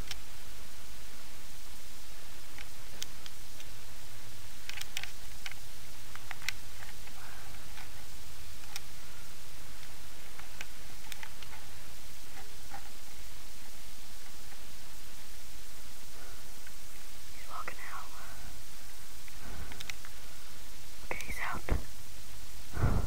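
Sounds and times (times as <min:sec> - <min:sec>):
microphone hiss and hum: 0:00.0 - 0:23.0
faint clicks and taps: 0:02.5 - 0:03.8, 0:04.6 - 0:08.9, 0:09.7 - 0:13.0, 0:19.2 - 0:20.2.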